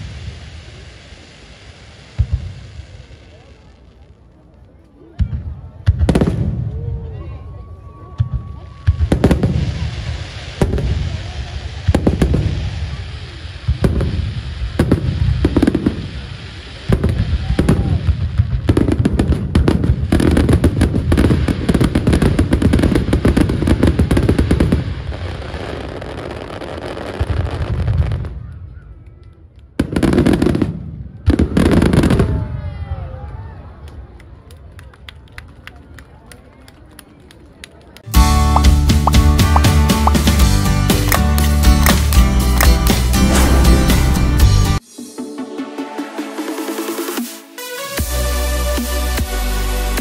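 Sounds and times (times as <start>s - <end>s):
dense crackling barrage: 41.8s - 44.8s
firework shells bursting: 41.8s - 44.8s.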